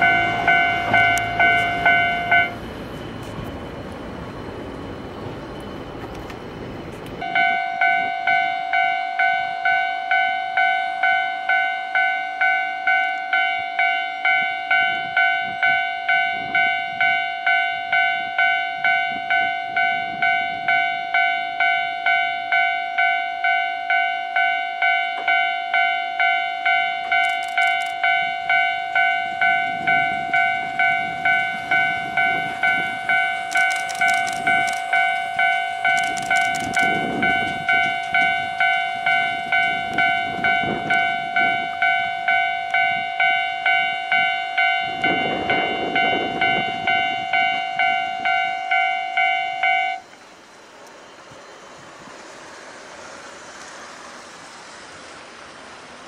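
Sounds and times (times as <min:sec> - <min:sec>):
level crossing warning bell: 0:00.0 - 0:03.8, 0:07.2 - 0:50.1
cable car wheels rumbling: 0:00.0 - 0:56.0
clicking on rails: 0:05.6 - 0:07.3, 0:26.8 - 0:28.7, 0:32.3 - 0:43.0.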